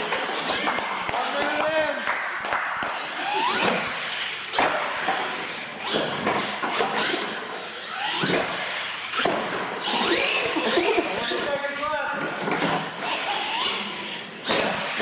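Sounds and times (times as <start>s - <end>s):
rc truck motor whine: 3.0s - 11.5s, 12.6s - 15.0s.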